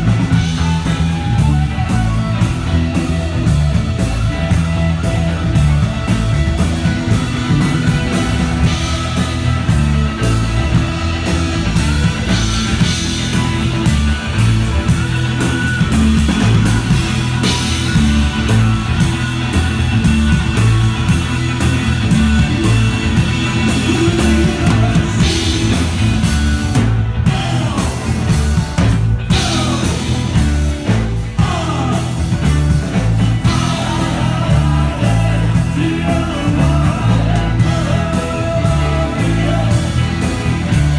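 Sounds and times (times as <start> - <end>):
rock band playing: 0.0 - 40.9
person singing: 22.0 - 26.1, 27.2 - 28.5, 29.3 - 32.7, 33.4 - 40.8.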